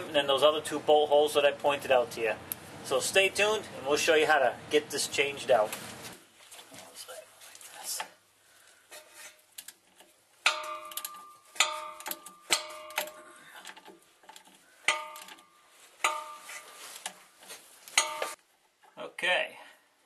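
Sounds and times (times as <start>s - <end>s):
metallic clinks and clanks: 10.5s - 16.8s, 18.0s - 18.4s.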